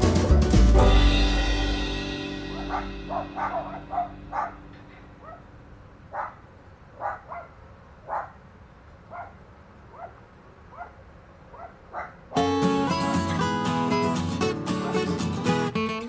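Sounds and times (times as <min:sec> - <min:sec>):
puppies yapping: 0:02.6 - 0:05.4, 0:06.1 - 0:06.4, 0:07.0 - 0:07.5, 0:14.8 - 0:15.2.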